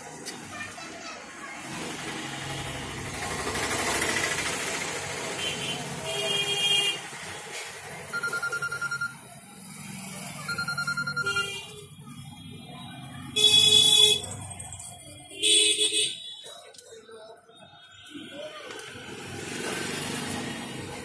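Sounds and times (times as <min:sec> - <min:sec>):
background chatter: 0:00.0 - 0:21.0
electronic ringing tone: 0:08.1 - 0:09.3, 0:10.4 - 0:11.7.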